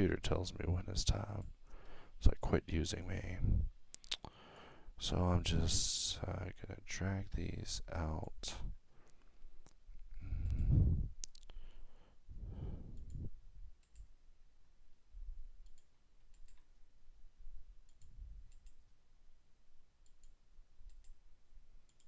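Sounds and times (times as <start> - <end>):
computer mouse clicking: 12.9 - 13.2, 13.8 - 14.1, 15.6 - 16.7, 17.9 - 18.8, 20.0 - 21.2.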